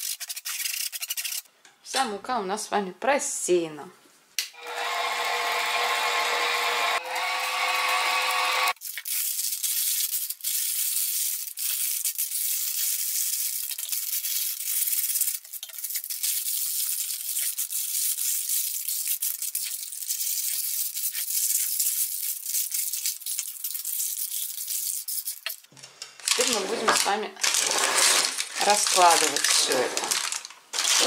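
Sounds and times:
paper being crumpled: 0.0s - 1.4s, 8.7s - 31.0s.

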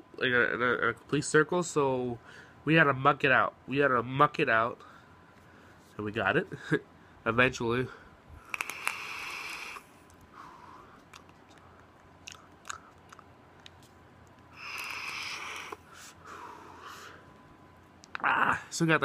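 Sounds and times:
vape hiss: 8.4s - 10.0s, 14.5s - 15.9s.

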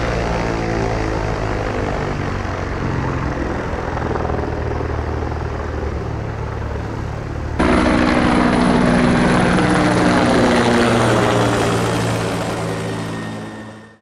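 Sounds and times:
helicopter passing overhead: 0.0s - 14.0s.

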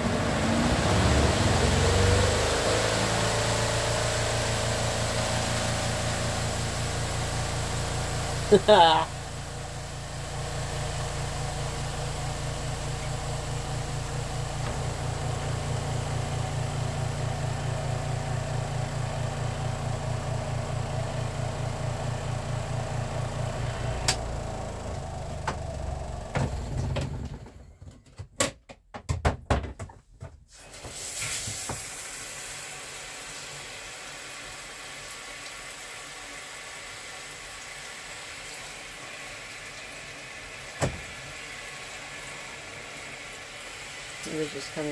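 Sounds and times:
spin-dryer motor humming: 0.0s - 27.6s, 38.1s - 44.9s.

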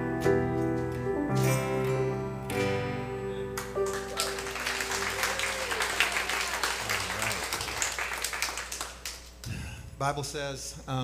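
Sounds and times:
crowd applauding: 3.6s - 9.3s.

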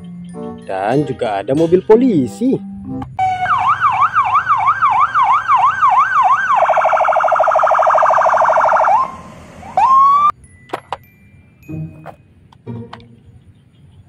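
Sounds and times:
police siren wailing and warbling: 3.2s - 10.4s
siren rising whoop: 3.2s - 10.4s.

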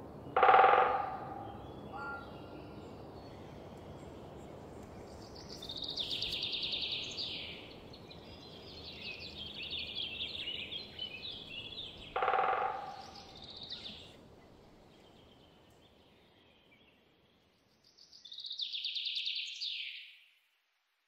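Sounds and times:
songbirds singing: 0.0s - 20.3s
rapid bird trill: 0.4s - 2.2s, 11.9s - 14.0s.

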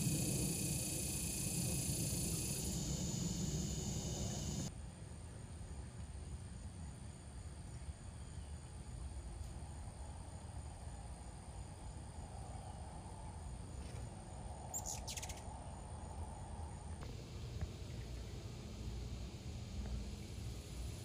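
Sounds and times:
high insect drone: 0.0s - 4.7s, 6.2s - 21.0s
low rumble: 0.0s - 4.7s
bird chirp: 14.7s - 15.5s.

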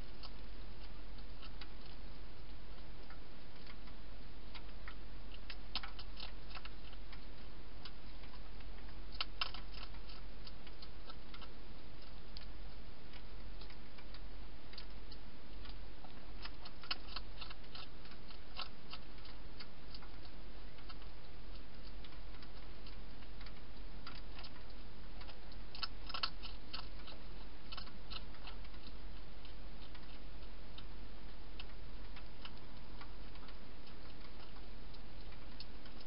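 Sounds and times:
hedgehog crunching dry food: 0.0s - 36.0s
low hum and hiss: 0.0s - 36.0s.

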